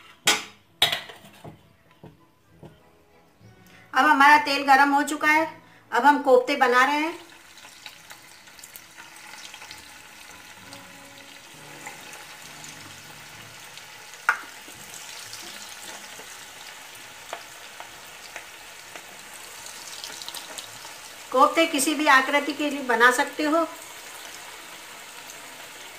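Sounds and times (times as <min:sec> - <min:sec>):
batter sizzling in hot oil: 0:07.1 - 0:25.9.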